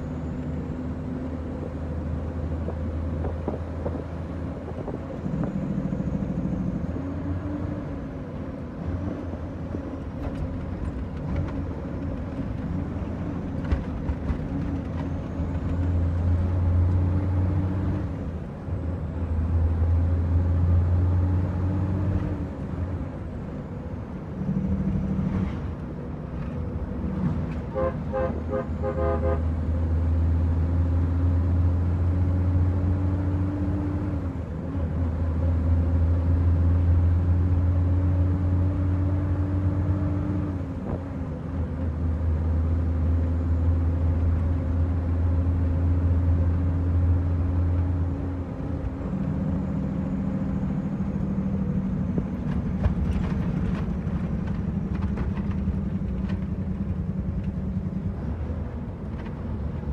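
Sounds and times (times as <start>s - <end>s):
truck diesel engine: 0.0s - 59.9s
horn tooting: 27.7s - 29.6s.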